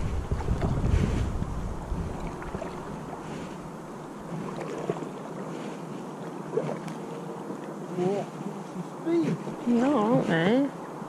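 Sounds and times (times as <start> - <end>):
wind rumble on microphone: 0.0 - 5.7
paddle dipping through water: 0.0 - 9.8.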